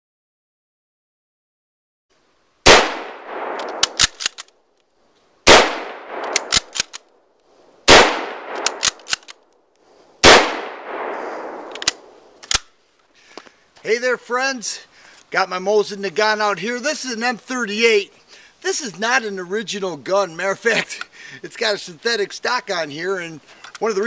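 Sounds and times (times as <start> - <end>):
rifle shots echoing: 2.6 - 4.4, 5.4 - 6.9, 7.9 - 9.2, 10.2 - 12.4
rifle bolt metallic clicks: 3.4 - 4.9, 6.1 - 7.2, 8.5 - 9.6, 11.6 - 12.8, 23.6 - 23.9.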